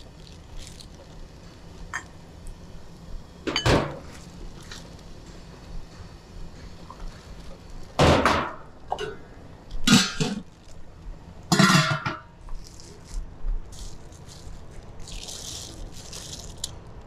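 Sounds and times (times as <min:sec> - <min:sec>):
dishes clattering: 0:09.9 - 0:10.4, 0:11.5 - 0:12.3.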